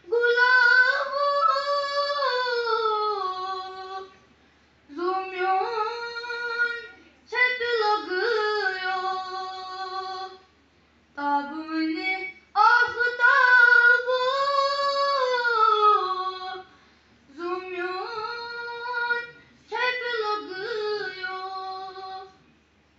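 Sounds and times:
boy singing unaccompanied: 11.2s - 16.7s.

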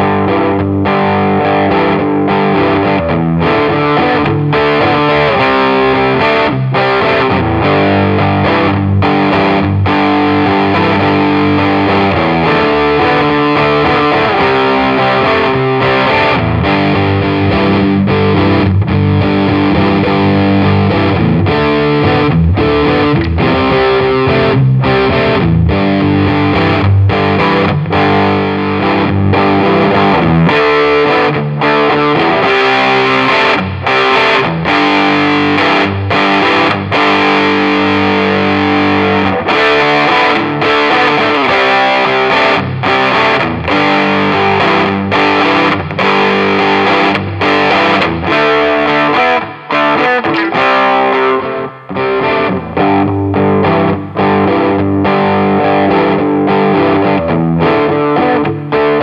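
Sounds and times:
overdriven electric guitar chords: 0.0s - 59.0s.

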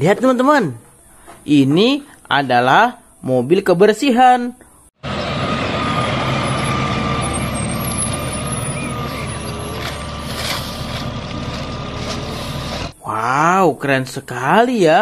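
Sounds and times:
garbage truck engine running: 5.0s - 13.0s
high whine: 5.0s - 13.0s.

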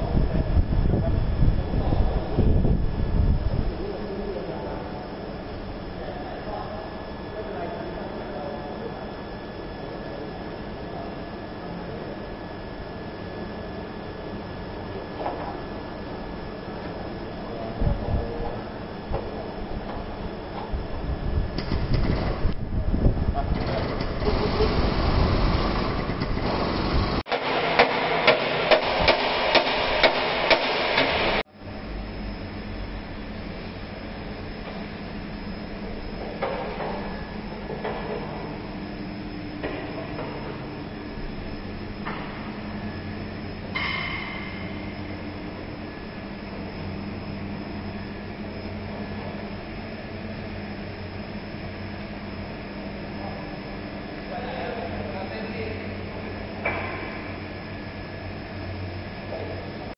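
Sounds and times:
induction heater noise: 0.0s - 59.9s
low machinery hum: 0.0s - 59.9s
hammer striking steel frame: 27.3s - 31.3s.

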